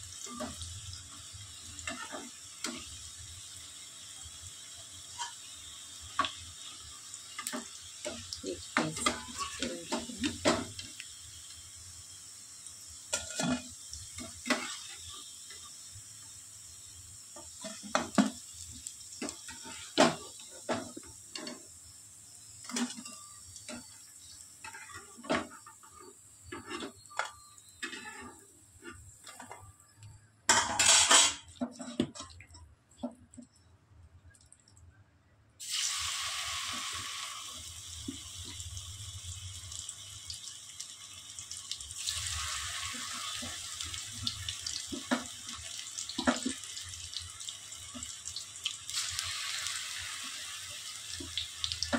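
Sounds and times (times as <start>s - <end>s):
dishes and utensils clinking: 7.4s - 10.8s, 13.1s - 14.8s, 22.6s - 24.0s, 24.6s - 29.7s, 30.5s - 32.4s
tap water running into sink: 35.6s - 51.9s.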